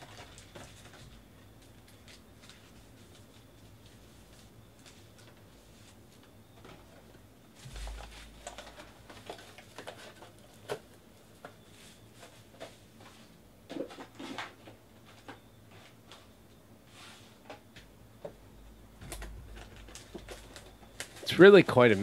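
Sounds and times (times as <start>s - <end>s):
handling noises: 19.0s - 22.0s.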